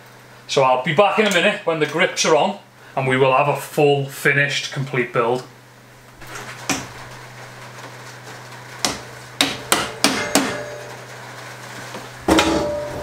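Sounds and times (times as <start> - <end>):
sharp knocks: 8.8 - 10.8.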